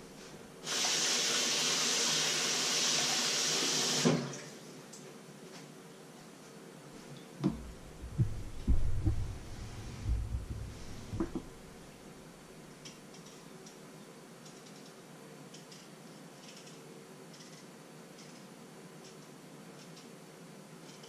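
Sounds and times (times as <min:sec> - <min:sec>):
faint hum: 0:05.9 - 0:12.8
thuds on wooden cutting board: 0:07.4 - 0:11.6.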